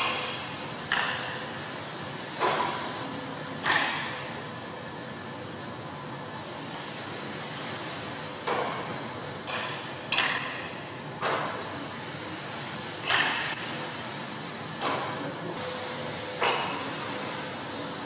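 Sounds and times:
hiss of moving air: 0:06.2 - 0:10.1.

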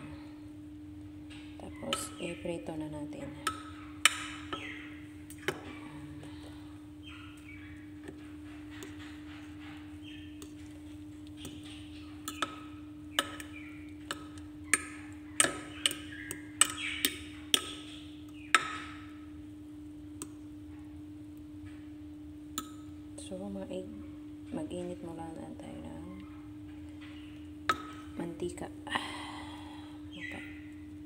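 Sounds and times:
steady low hum: 0:00.0 - 0:31.0
soft scraping and squishing: 0:08.1 - 0:12.4.

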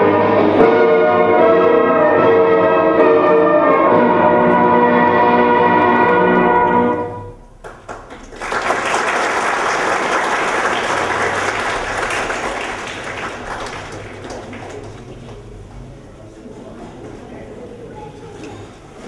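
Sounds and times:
sustained music: 0:00.0 - 0:07.6
crowd applauding: 0:07.6 - 0:15.6.

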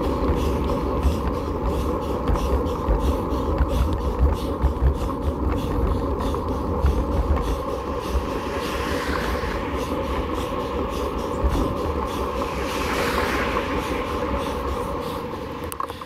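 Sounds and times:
light rattles and ticks: 0:00.0 - 0:08.3
bicycle rumble on rough asphalt: 0:00.0 - 0:16.0
wind buffeting on microphone: 0:00.0 - 0:16.0.

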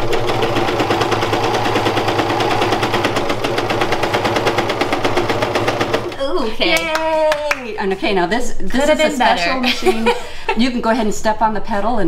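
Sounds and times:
overlock sewing machine running: 0:00.0 - 0:06.2.

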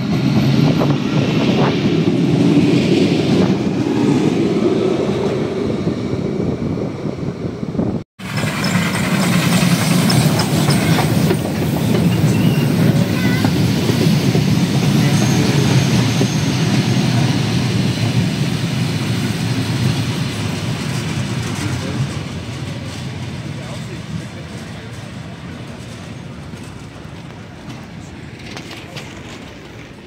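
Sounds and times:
train wheels clattering on rails: 0:08.2 - 0:30.0
wheel squeals: 0:08.3 - 0:17.5.

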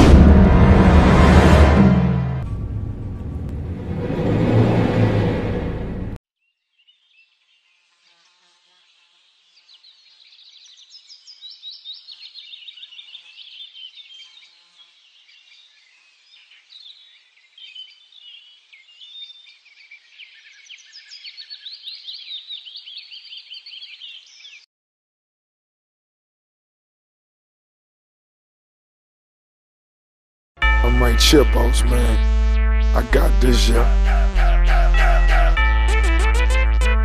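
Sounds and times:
birds chirping and trilling: 0:06.4 - 0:24.7.

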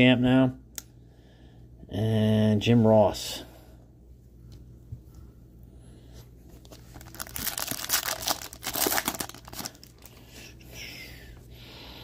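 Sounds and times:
foil wrapper tearing: 0:06.7 - 0:10.2.

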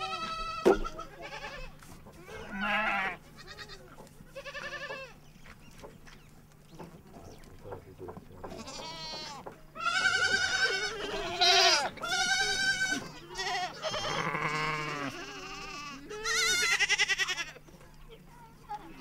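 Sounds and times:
goats and sheep bleating: 0:00.0 - 0:05.2, 0:08.4 - 0:17.7.

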